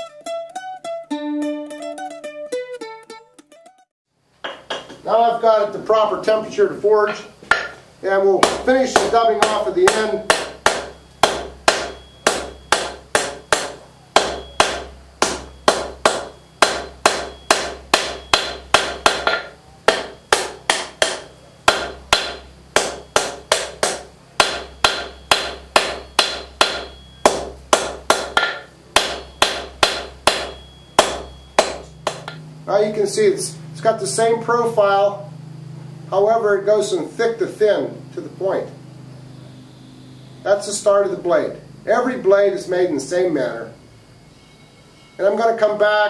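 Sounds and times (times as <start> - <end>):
hammer ringing on anvil: 8.4 - 32.4.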